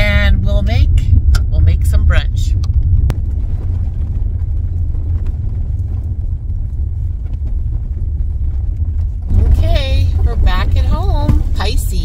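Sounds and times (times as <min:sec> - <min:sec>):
car engine and tyres rumbling: 0:00.0 - 0:12.0
gravel ticking under tyres: 0:02.6 - 0:12.0.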